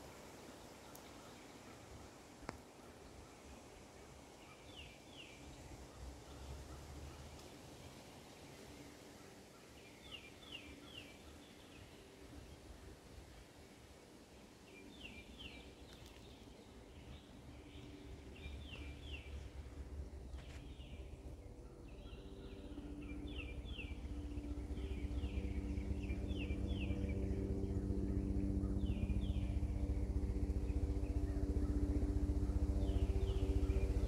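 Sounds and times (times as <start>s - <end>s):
low steady hum: 0.0s - 34.0s
bird chirping: 14.7s - 29.7s.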